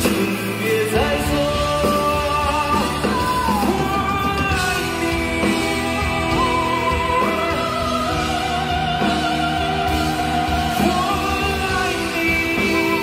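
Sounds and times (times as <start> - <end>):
man singing with vibrato: 0.0 - 13.0.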